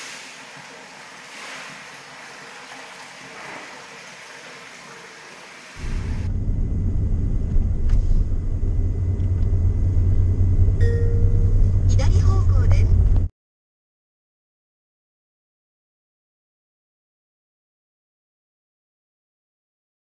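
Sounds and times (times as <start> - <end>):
van driving road and engine noise: 5.8 - 13.3.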